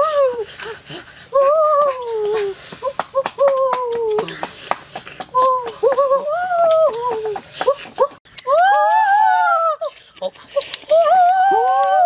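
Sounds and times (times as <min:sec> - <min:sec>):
high whimpering cry: 0:00.0 - 0:02.6, 0:10.6 - 0:12.0.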